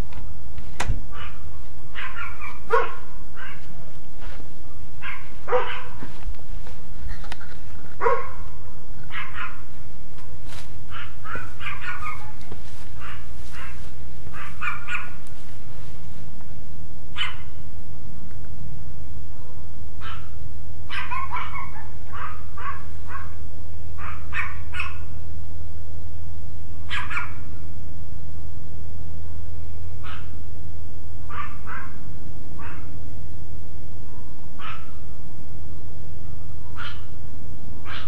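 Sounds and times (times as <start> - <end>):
steady low hum: 0.0 - 38.0
dogs barking: 1.1 - 3.8, 5.0 - 6.2, 8.0 - 9.8, 10.9 - 15.2, 17.1 - 17.5, 20.0 - 23.4, 24.0 - 25.1, 26.9 - 27.5, 30.0 - 30.4, 31.3 - 32.0, 32.6 - 33.0, 34.6 - 35.0, 36.7 - 37.2.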